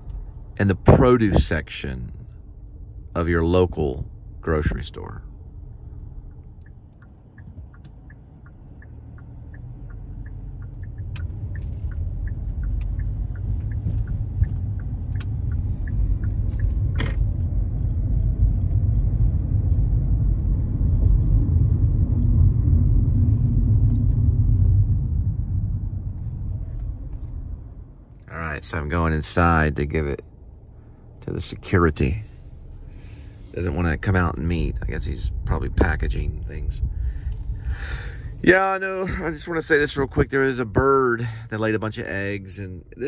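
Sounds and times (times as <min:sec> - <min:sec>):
road and engine rumble: 0:00.0 - 0:43.0
turn signal ticking: 0:05.9 - 0:20.2.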